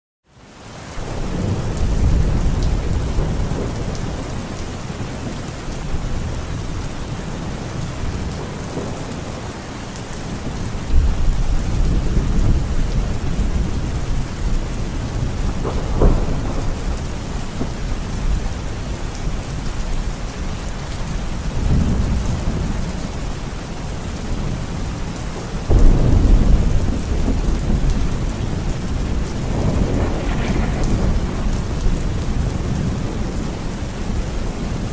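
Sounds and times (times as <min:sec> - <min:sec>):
heavy rain pouring: 0:00.3 - 0:34.9
thunder rumbling: 0:01.0 - 0:23.3, 0:24.0 - 0:34.9
sharp thunder crack: 0:15.1 - 0:17.8, 0:25.7 - 0:27.9, 0:29.0 - 0:33.4.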